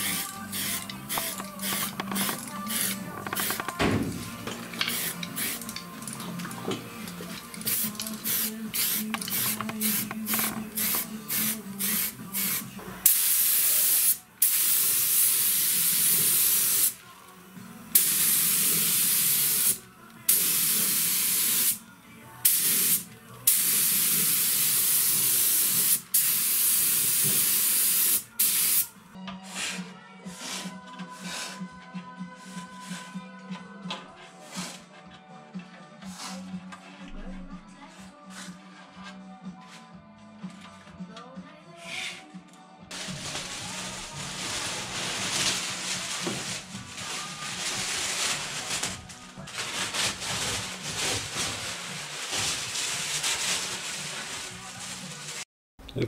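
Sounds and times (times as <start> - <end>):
paint spraying hiss: 0.0 - 3.7, 4.8 - 5.7, 7.6 - 17.0, 17.9 - 21.8, 22.4 - 28.9.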